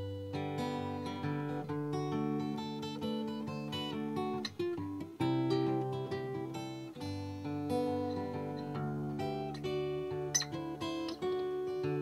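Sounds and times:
acoustic guitar picking and strumming: 0.0 - 12.0.

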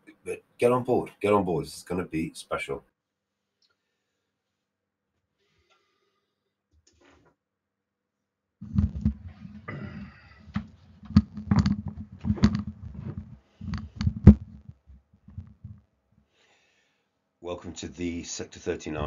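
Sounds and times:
sharp clicks and knocks: 8.6 - 9.7, 10.5 - 15.8
microphone handling thuds: 8.6 - 15.8.

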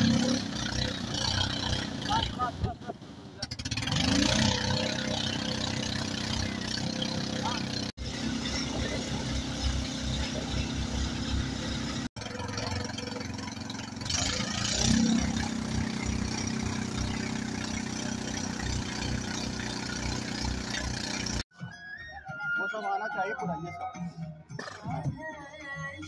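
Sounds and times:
motorboat engine running: 0.0 - 2.7, 3.4 - 21.4.

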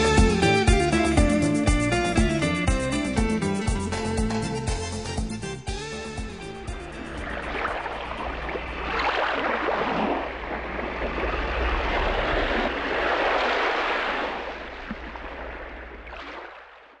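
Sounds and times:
ocean waves washing in: 5.8 - 17.0.

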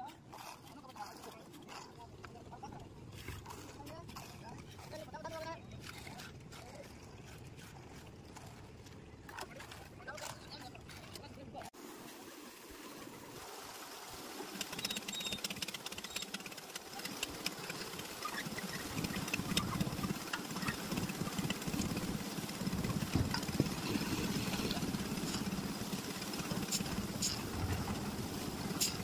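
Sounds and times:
clinks and scrapes of aggregate: 0.0 - 11.7
concrete mixer engine running: 14.5 - 29.0.

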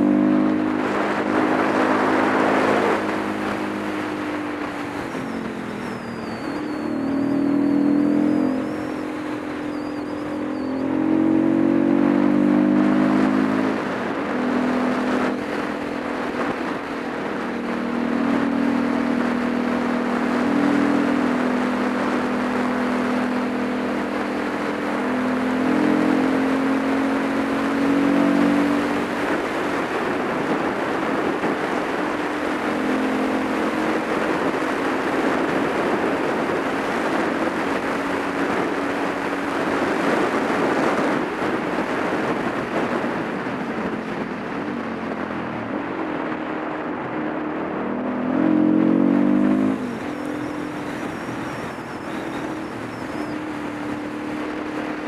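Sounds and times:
motorcycle engine running: 0.0 - 55.0
wind rush on microphone: 0.0 - 55.0.

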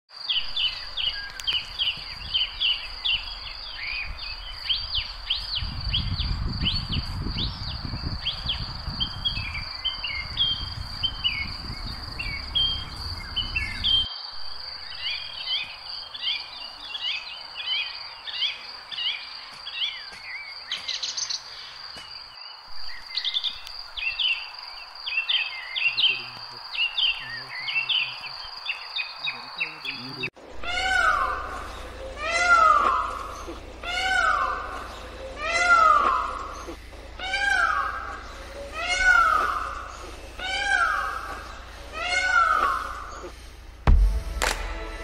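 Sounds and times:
birds chirping: 0.1 - 45.0
low rumble: 2.4 - 14.1, 43.5 - 45.0.

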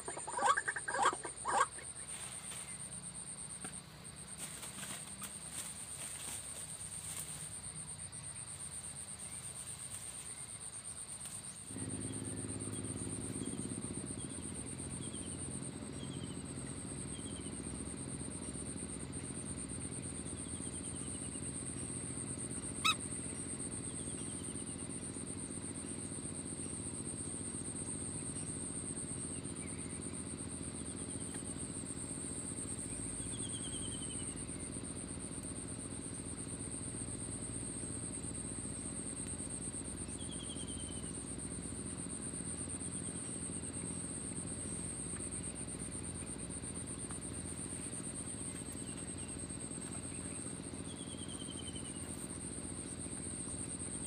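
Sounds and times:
high-pitched insect drone: 0.0 - 54.0
low steady hum: 0.0 - 54.0
faint bird chirps: 22.8 - 25.1, 32.7 - 34.8, 40.0 - 41.2, 47.7 - 52.4.

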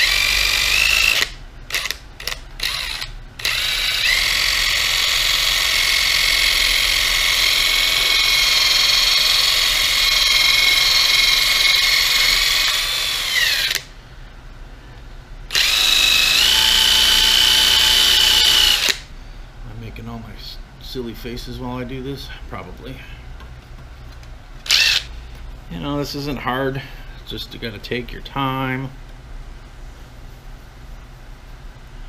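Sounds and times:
cordless drill whine: 0.0 - 13.9, 15.5 - 19.0, 24.6 - 25.1.

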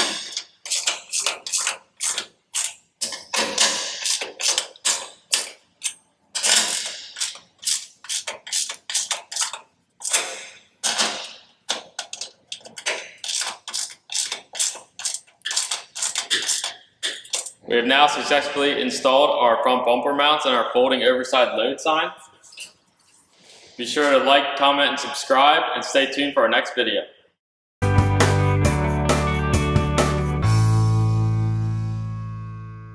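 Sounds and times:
ratcheting wrench clicking: 0.0 - 11.1, 11.7 - 17.6.

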